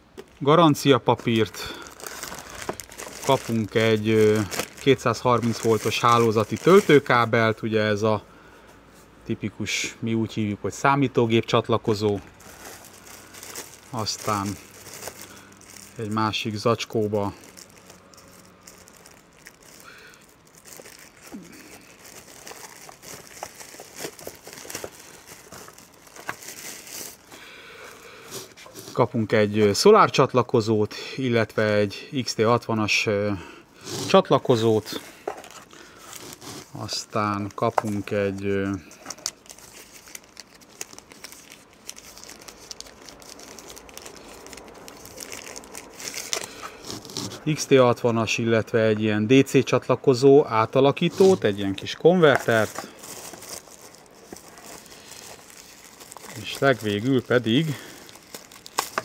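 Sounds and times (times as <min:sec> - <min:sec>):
paper and plastic crinkling: 0:00.1 - 0:07.6, 0:11.9 - 0:29.9, 0:33.8 - 0:48.0, 0:50.6 - 0:59.0.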